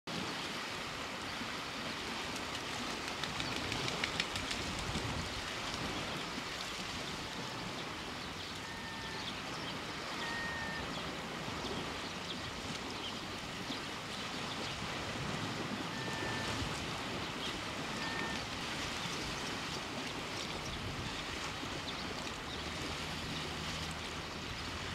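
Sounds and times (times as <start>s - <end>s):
wind: 0.0s - 24.9s
water on stony shore: 0.1s - 24.9s
faint ticks and crackles: 2.3s - 6.0s.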